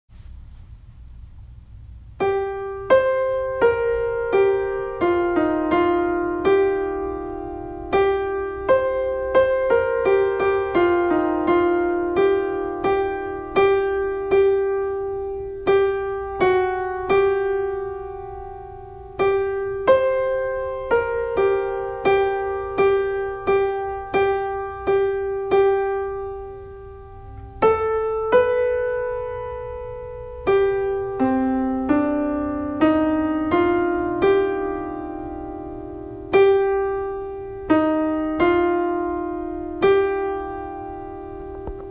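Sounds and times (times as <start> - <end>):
piano melody single notes: 2.2 - 41.9.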